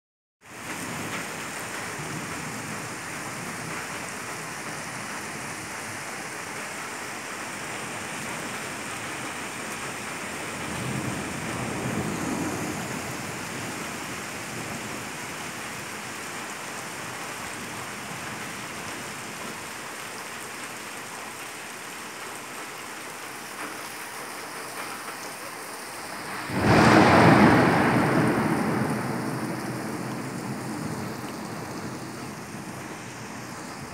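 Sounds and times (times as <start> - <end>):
rain falling: 0.4 - 33.9
thunder rolling: 10.6 - 14.8, 26.1 - 33.9
loud thunderclap: 26.2 - 32.9.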